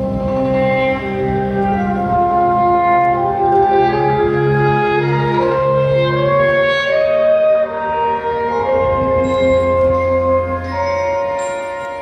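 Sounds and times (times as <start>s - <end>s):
orchestral music with held notes: 0.0s - 12.0s.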